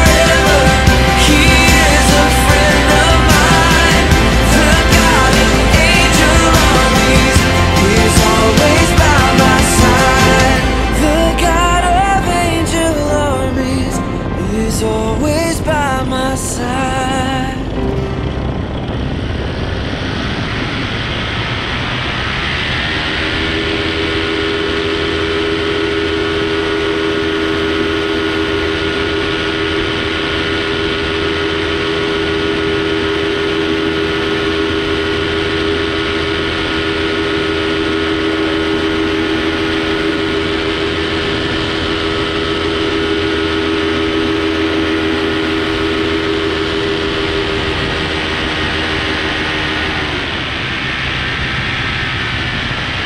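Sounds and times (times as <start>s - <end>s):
paramotor engine droning: 0.0s - 53.0s
wind noise: 0.0s - 53.0s.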